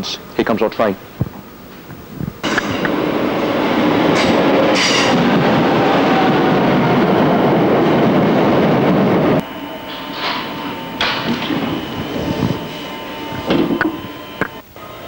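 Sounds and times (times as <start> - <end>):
train wheels rumbling on rails: 1.1 - 14.6
high-pitched bursts: 8.9 - 14.6
hum with steady tone: 9.4 - 15.0.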